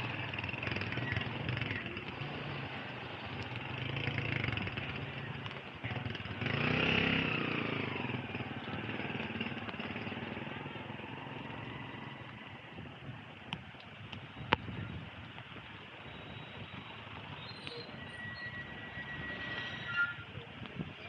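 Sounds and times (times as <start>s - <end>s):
motorcycle engines running: 0.0s - 19.6s
tyres on wet road: 0.0s - 21.0s.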